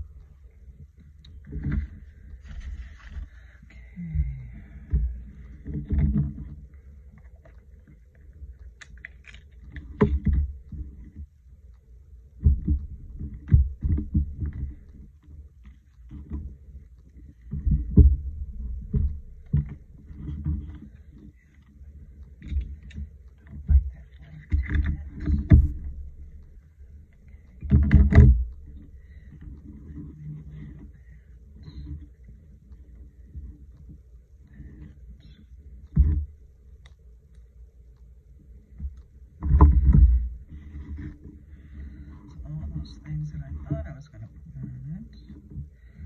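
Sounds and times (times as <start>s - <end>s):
paper rustling on a desk: 2.4s - 3.5s.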